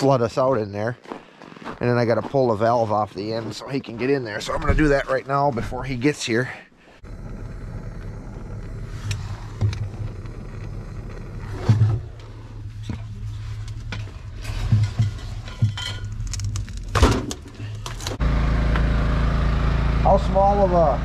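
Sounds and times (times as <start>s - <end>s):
steady low hum: 7.0s - 16.8s
knocks and scrapes in metal box: 11.5s - 17.6s.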